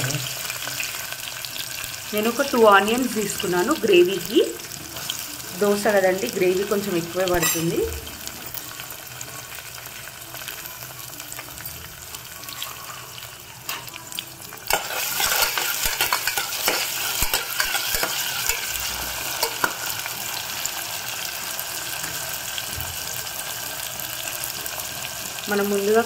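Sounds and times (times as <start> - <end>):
onions sizzling in hot oil: 0.0 - 26.0
metal ladle scraping pot: 14.7 - 19.9.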